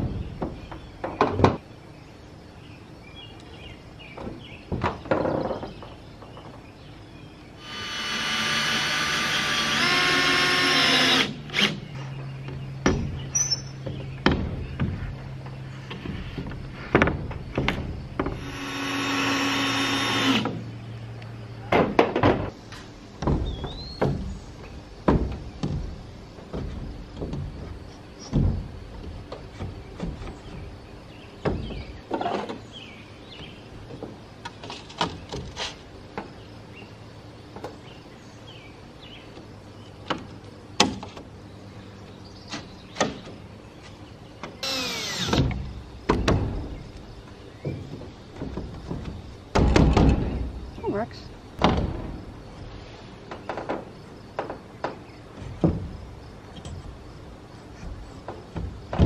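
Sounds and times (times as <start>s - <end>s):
metal panels knocking and clunking: 4.1s - 6.7s, 12.0s - 18.4s, 21.6s - 32.6s, 45.2s - 47.0s, 47.6s - 50.8s, 51.6s - 59.0s
cordless drill running: 44.6s - 45.4s.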